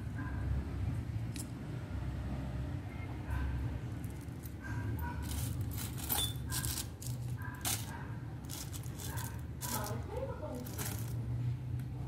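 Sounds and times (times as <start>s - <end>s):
small metal parts clinking: 4.0s - 4.6s, 5.2s - 11.2s
plastic bag crinkling: 5.2s - 11.2s.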